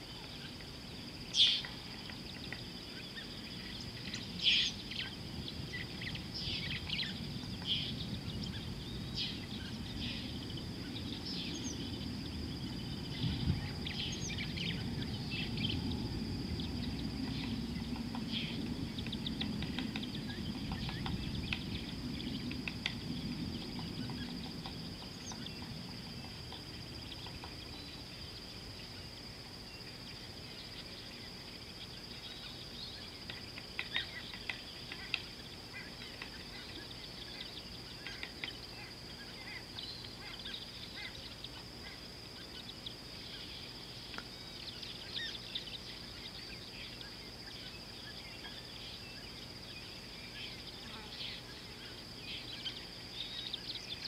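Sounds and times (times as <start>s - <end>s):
high-pitched insect drone: 0.0s - 33.2s.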